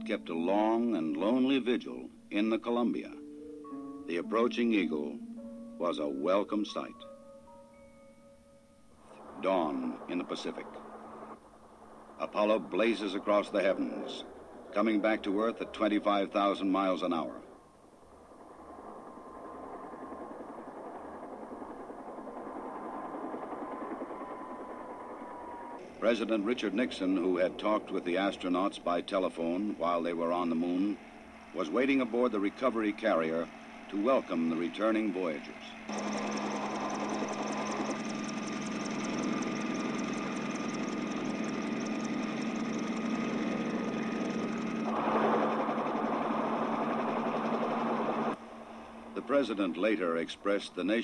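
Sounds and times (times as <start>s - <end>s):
faint thin whine: 7.8s - 50.5s
engine-like rushing drone: 9.1s - 49.6s.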